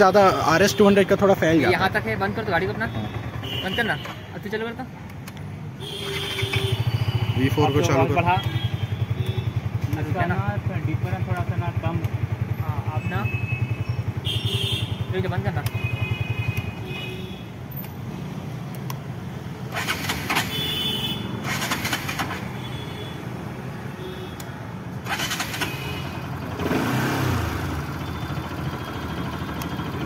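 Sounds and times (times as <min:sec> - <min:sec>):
motorcycle engines idling: 0:00.1 - 0:04.8, 0:05.8 - 0:17.8, 0:24.9 - 0:30.0.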